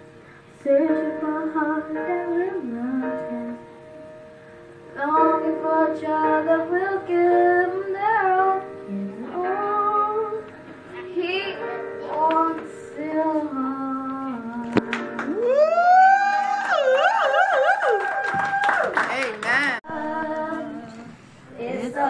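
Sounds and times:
girls singing together: 0:19.8 - 0:22.0.

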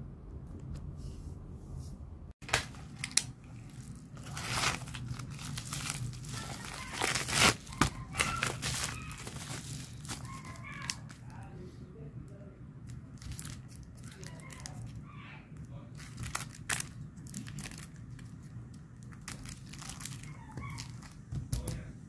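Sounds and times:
low room hum: 0:00.0 - 0:22.0
plastic mailer tearing: 0:02.4 - 0:11.3, 0:15.9 - 0:18.3, 0:19.1 - 0:21.2
plastic wrapping crinkling: 0:02.4 - 0:11.4, 0:12.9 - 0:15.0, 0:15.6 - 0:21.7.

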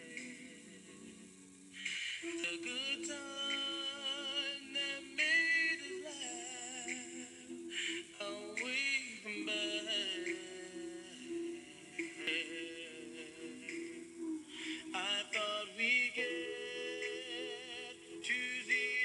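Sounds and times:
person singing slow melody: 0:00.0 - 0:19.0
sustained musical accompaniment: 0:00.0 - 0:19.0.

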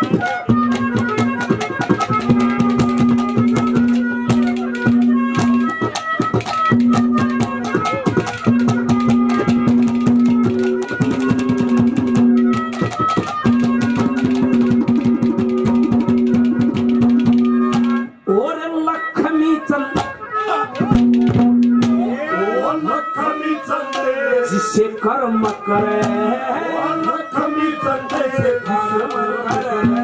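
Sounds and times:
rapid hand drum strokes: 0:00.0 - 0:18.1, 0:20.8 - 0:22.1, 0:28.1 - 0:30.0
melody instrument holding long notes: 0:06.8 - 0:30.0.

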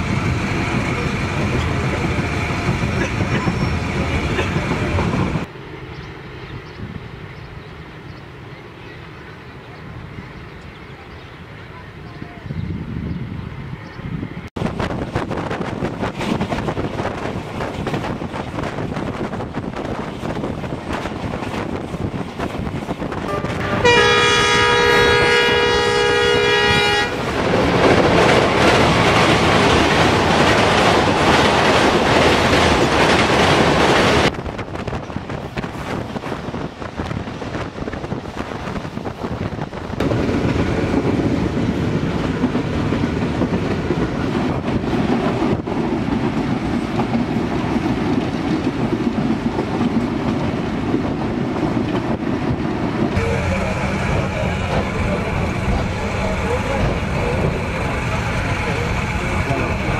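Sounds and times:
train wheels clattering on rails: 0:14.6 - 0:26.0, 0:26.8 - 0:59.9
train horn blast: 0:23.2 - 0:27.3, 0:53.1 - 0:57.0.

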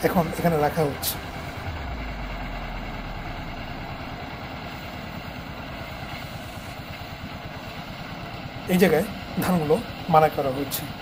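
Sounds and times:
small engine pulsing: 0:00.0 - 0:11.0
threshing drum whirring: 0:00.0 - 0:11.0.

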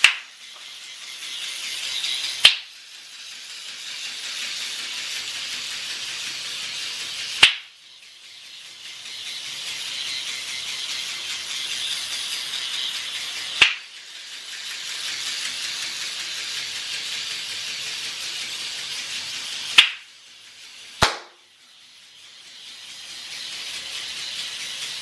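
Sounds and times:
toy robot motor whirring: 0:00.0 - 0:25.0
hand snaps: 0:21.0 - 0:21.3.

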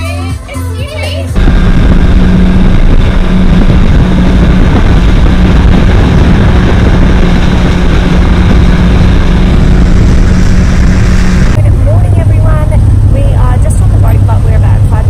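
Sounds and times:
wake rushing: 0:01.4 - 0:11.6
outboard engine humming: 0:01.4 - 0:15.0
wind buffeting microphone: 0:01.4 - 0:15.0.

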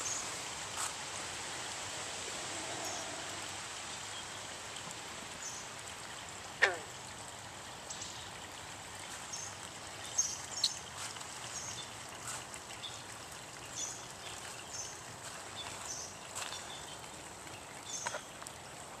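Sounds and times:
rain hiss: 0:00.0 - 0:19.0
raindrops plinking into water: 0:04.0 - 0:19.0.

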